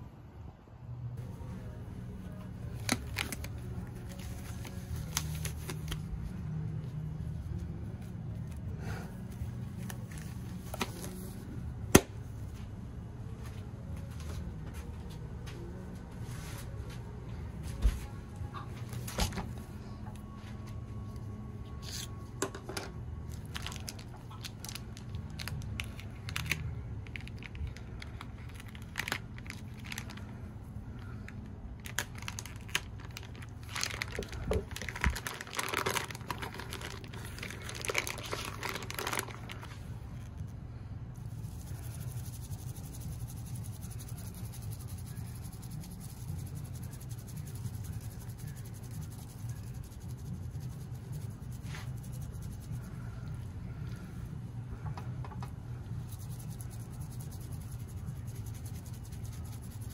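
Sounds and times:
plastic bag crinkling and tearing: 0:02.8 - 0:06.0, 0:23.3 - 0:30.3, 0:31.8 - 0:39.7.

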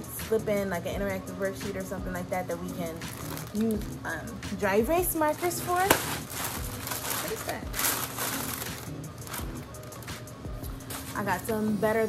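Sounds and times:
background music: 0:00.0 - 0:12.0
plastic bag rustling: 0:02.9 - 0:03.8, 0:05.2 - 0:11.6.

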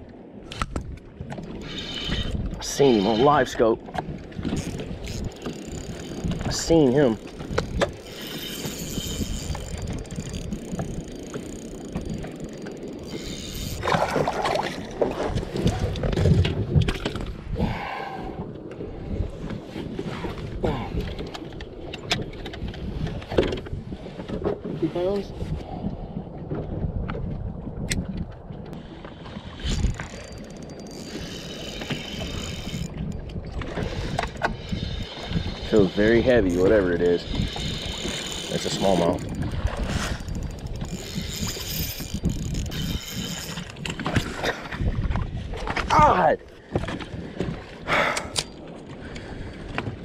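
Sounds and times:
water against a boat: 0:00.0 - 0:50.0
wind rumbling on microphone: 0:00.0 - 0:50.0
fishing reel cranking: 0:01.5 - 0:03.7, 0:04.4 - 0:14.0, 0:29.6 - 0:44.2
fish splashing: 0:13.7 - 0:15.4.

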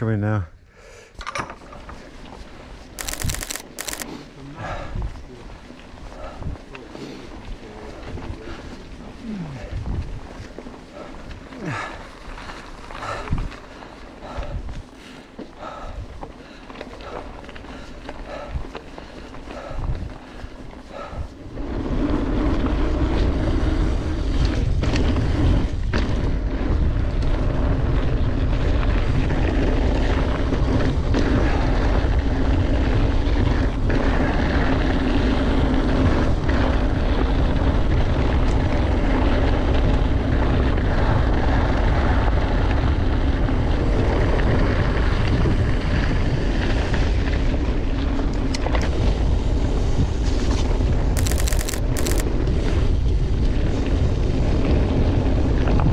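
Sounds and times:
bike tyre and trail noise: 0:00.0 - 0:55.9
wind on microphone: 0:07.5 - 0:11.8, 0:19.6 - 0:55.9.

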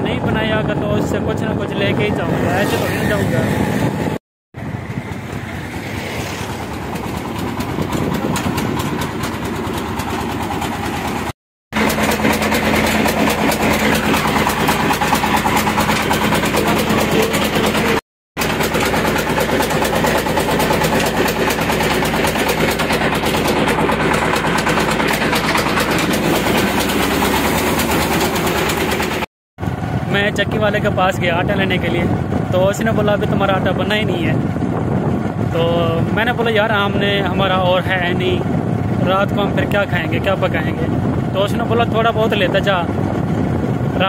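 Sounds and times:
flour mill machinery running: 0:07.2 - 0:29.3.

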